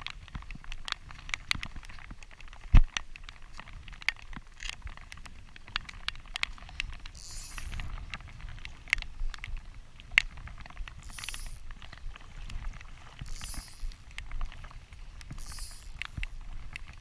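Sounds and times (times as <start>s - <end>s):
wind rumble: 3.8s - 17.0s.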